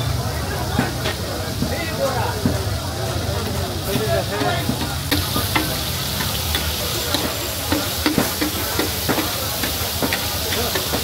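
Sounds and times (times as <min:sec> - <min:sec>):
liver sizzling on griddle: 0:00.0 - 0:11.0.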